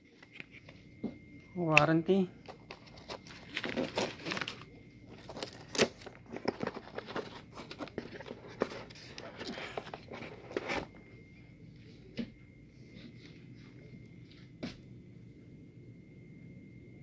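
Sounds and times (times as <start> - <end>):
plastic and fabric handling noise: 2.5 - 11.1.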